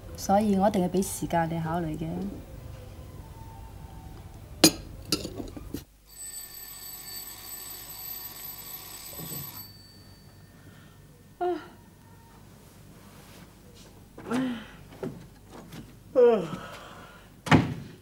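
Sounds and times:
alarm clock ringing: 6.1 - 11.2
woman yawning: 11.4 - 11.9.

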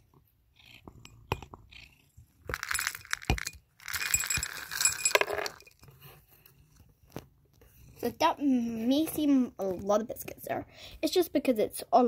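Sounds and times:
cat biscuits rattling into a bowl: 2.5 - 5.8.

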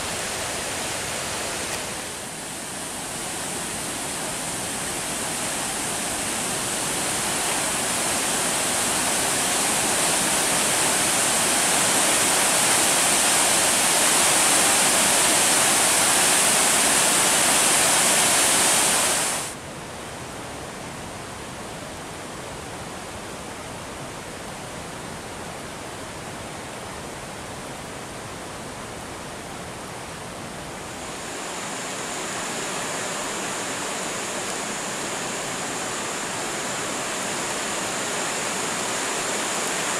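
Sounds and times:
floodwater rushing over boulders: 0.0 - 19.6, 30.2 - 39.9.

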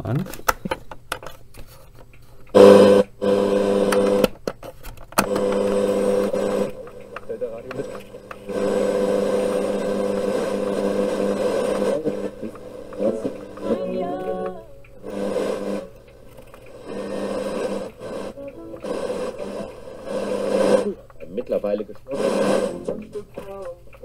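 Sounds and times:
radio static buzzing hum: 2.5 - 4.4, 5.2 - 24.0.

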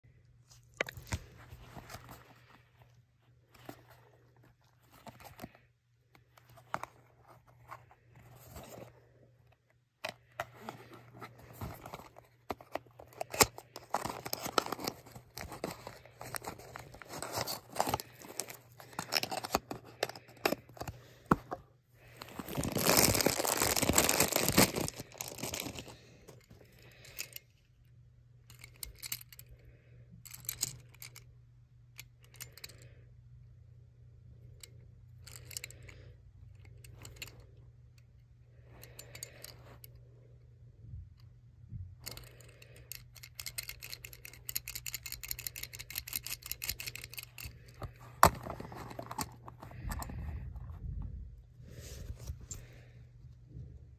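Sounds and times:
cardboard box opening and tearing: 11.3 - 20.5, 22.2 - 25.9.

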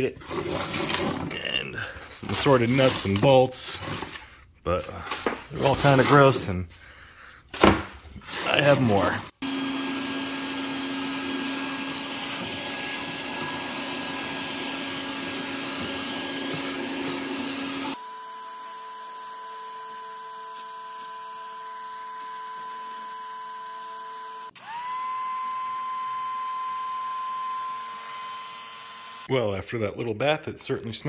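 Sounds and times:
shop vacuum sucking: 8.3 - 29.3
pressure washer whine: 9.4 - 29.3.

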